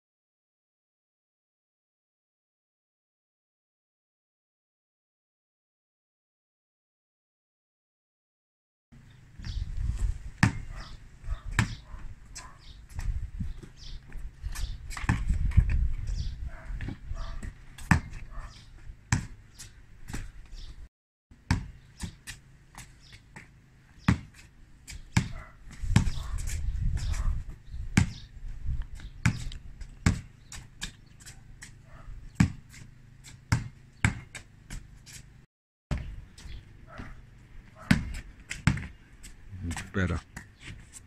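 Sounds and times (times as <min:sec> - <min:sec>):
basketball bouncing on concrete: 0:09.3 - 0:20.7, 0:21.4 - 0:35.1, 0:35.9 - 0:39.0, 0:39.7 - 0:40.8.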